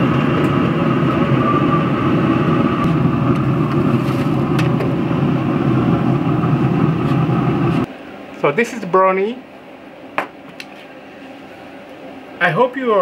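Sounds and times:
pellet grill fan whirring: 0.0 - 13.0.

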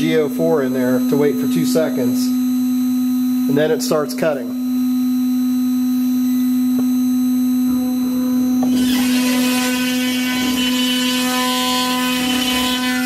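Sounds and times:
router spindle whine: 0.0 - 13.0
end mill rasping into wood: 8.8 - 13.0.

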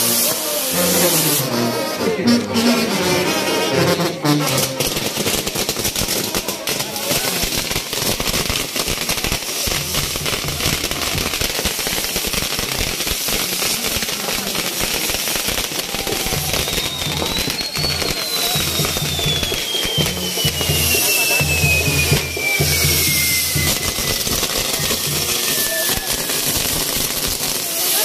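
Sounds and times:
crackle of firecrackers: 0.0 - 28.0
high falling whistle: 16.4 - 26.6.

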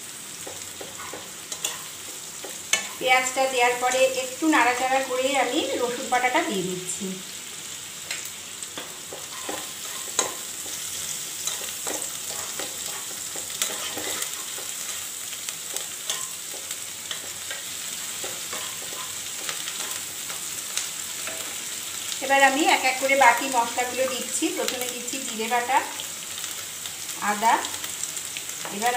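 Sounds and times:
paste sizzling in oil: 0.0 - 28.9
metal spatula scraping pan: 8.8 - 15.1.

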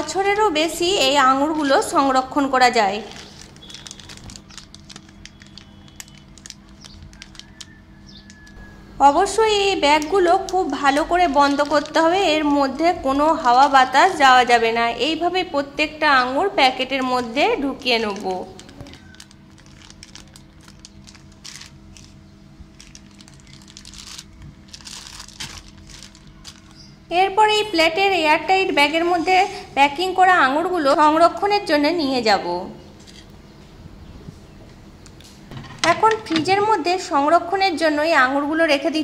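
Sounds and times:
faint steady hum: 0.0 - 39.0
plastic bag crinkling: 2.7 - 8.8, 9.7 - 14.2, 16.7 - 27.0
small irregular clicks: 3.3 - 8.6.

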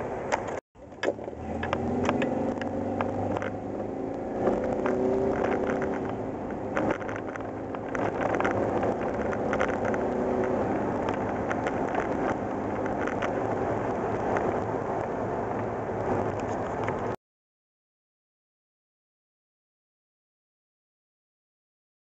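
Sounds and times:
engine drone: 0.0 - 17.2
tyre and road noise: 0.0 - 17.2
light clicks and rattles: 4.4 - 15.1.

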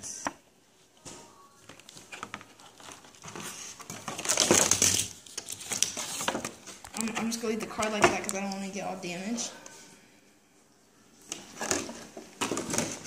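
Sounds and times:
card packaging crinkling: 1.6 - 7.4.

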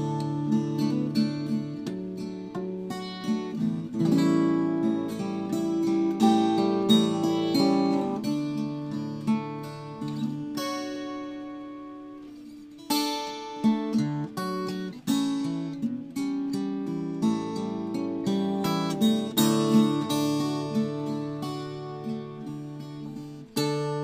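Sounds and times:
acoustic guitar melody: 0.0 - 24.0.

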